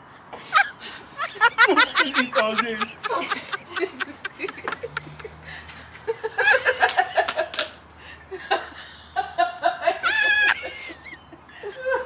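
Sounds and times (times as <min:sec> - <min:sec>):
high-pitched laugh: 0:00.5 - 0:05.4, 0:09.3 - 0:12.0.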